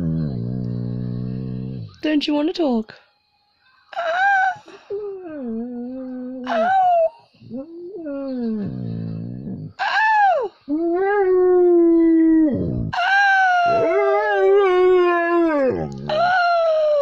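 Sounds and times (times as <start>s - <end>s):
dog howling: 5.0s - 17.0s.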